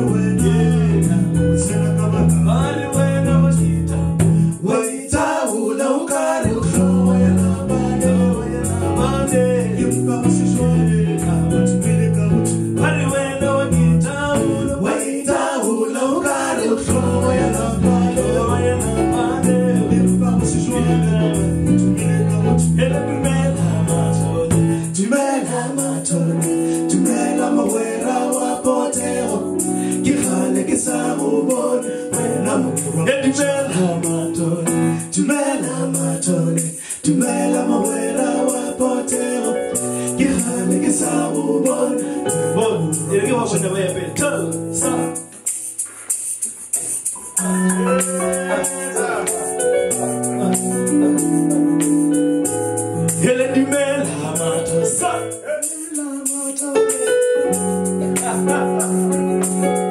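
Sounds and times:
electric bass guitar plucking: 0.0 - 4.7, 6.4 - 14.9, 16.7 - 25.0, 47.2 - 55.4
man singing: 0.0 - 45.3, 47.4 - 51.6, 53.0 - 59.4.

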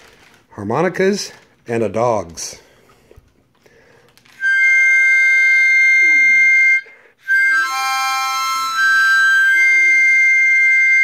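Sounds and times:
harmonica chords: 4.4 - 11.0.

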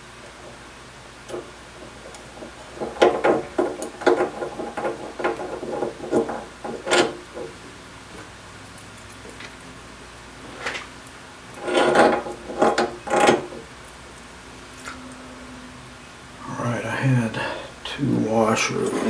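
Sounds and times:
light metal clicks and knocks: 1.3 - 7.5.

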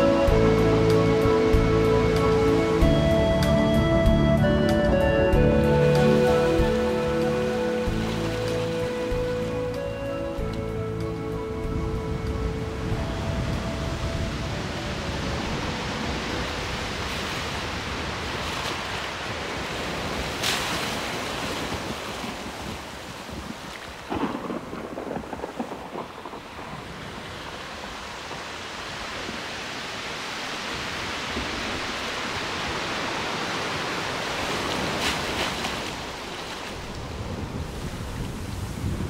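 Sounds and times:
steady rain: 0.0 - 3.6, 4.2 - 39.0
wind noise: 0.0 - 39.0
thunder crack: 24.1 - 27.4.

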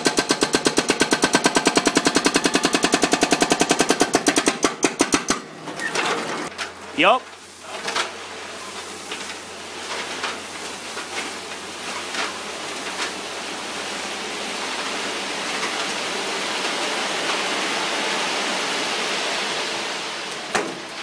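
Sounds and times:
dirt sliding out of truck bed: 5.5 - 21.0.

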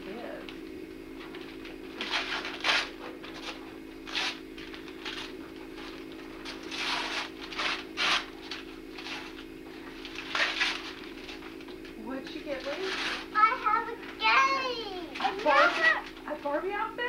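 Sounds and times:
wrapping paper rustling and tearing: 2.0 - 11.7, 12.5 - 13.4, 15.1 - 16.2.

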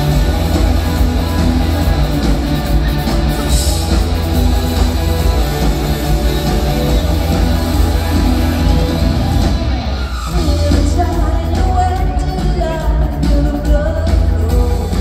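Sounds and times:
live band music: 0.0 - 15.0
person singing: 10.3 - 15.0.

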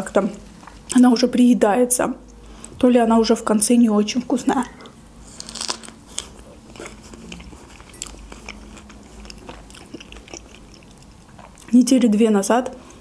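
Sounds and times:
close chewing: 4.8 - 11.8.

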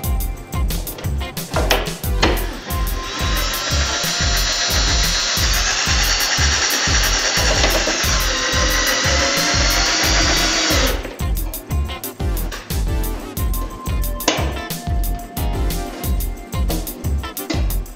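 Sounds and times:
background music with steady beat: 0.0 - 17.9
cordless drill driving screw: 2.2 - 11.1.

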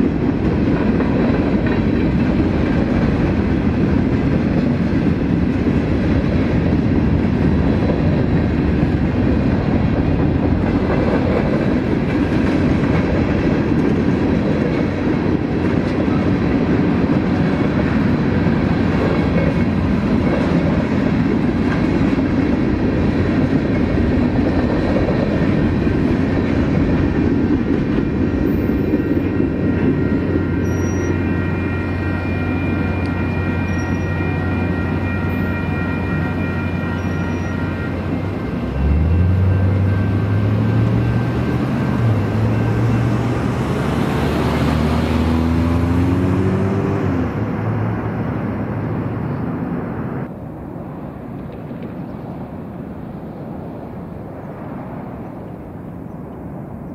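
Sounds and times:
train wheels clickety-clack: 0.0 - 31.5.

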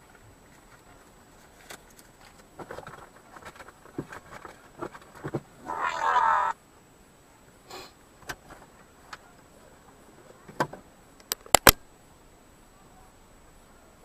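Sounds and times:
sharp loud clicks: 11.2 - 11.9.

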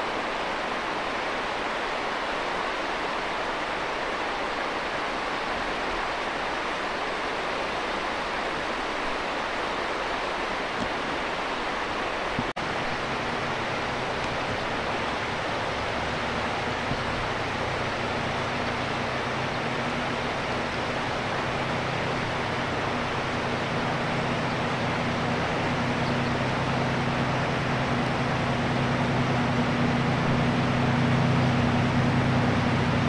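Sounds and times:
river rushing: 0.0 - 33.0
locomotive engine droning: 11.8 - 33.0.

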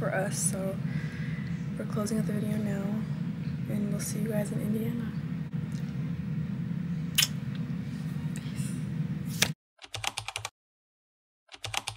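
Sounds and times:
steady low hum: 0.0 - 9.6.

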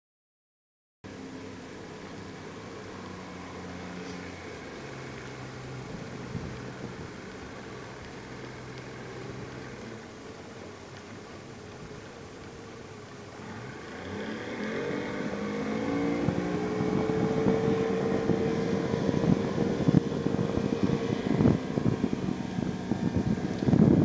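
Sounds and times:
outboard motor throttling up: 1.1 - 24.0
wind bumps on microphone: 5.9 - 7.2, 14.8 - 24.0.

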